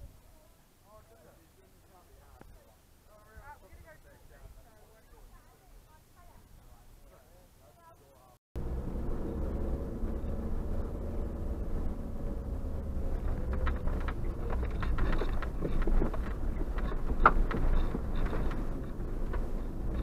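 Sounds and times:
engine and tyres rumbling: 0:08.6 - 0:20.0
clicks and rattles: 0:13.2 - 0:20.0.

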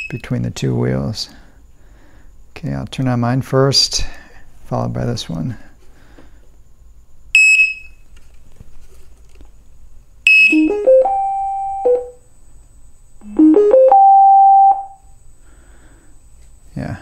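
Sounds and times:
electronic startup tune: 0:10.5 - 0:12.2, 0:13.2 - 0:14.9.

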